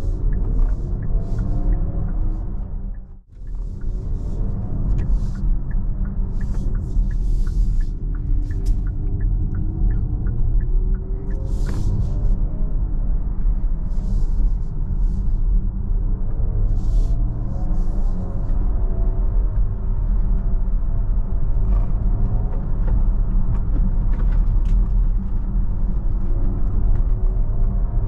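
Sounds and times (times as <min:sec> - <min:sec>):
turn signal ticking: 0:00.0 - 0:14.5
road and tyre rumble: 0:00.0 - 0:28.0.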